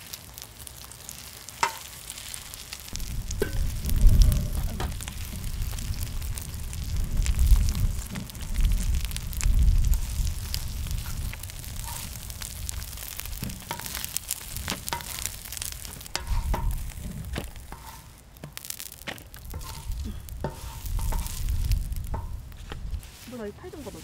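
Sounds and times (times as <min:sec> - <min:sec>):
batter sizzling in oil: 0:00.0 - 0:24.0
spatula scraping and tapping pan: 0:01.5 - 0:02.0, 0:03.3 - 0:05.6, 0:11.0 - 0:24.0
low rumble: 0:02.9 - 0:17.8, 0:19.4 - 0:23.1.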